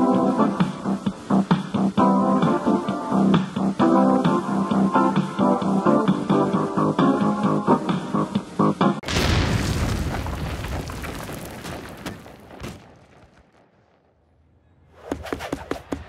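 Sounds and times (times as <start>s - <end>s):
music: 0.0s - 9.1s.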